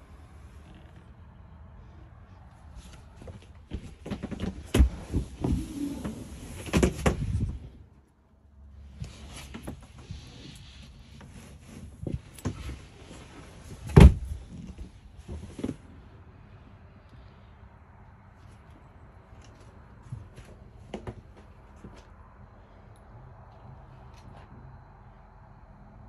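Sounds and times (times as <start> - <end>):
knocks and bumps: 3.2 - 7.6, 13.7 - 15.8.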